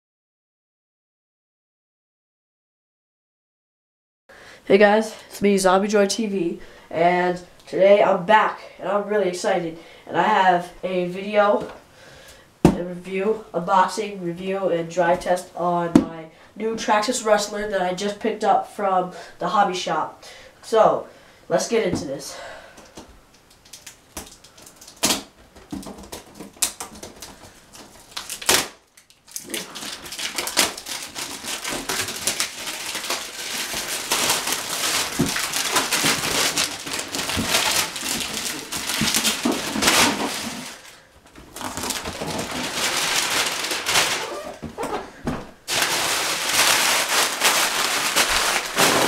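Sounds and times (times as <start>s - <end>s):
plastic wrap crinkling: 23.3s - 49.0s.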